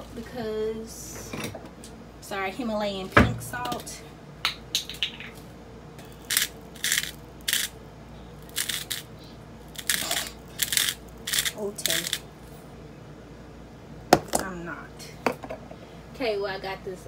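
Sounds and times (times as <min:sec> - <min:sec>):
salt grinder grinding: 0:06.0 - 0:07.8, 0:08.4 - 0:09.1, 0:09.7 - 0:12.2.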